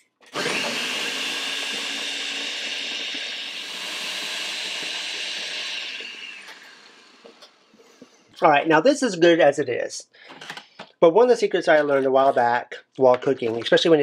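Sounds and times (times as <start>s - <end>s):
blender motor whine: 0.0s - 7.8s.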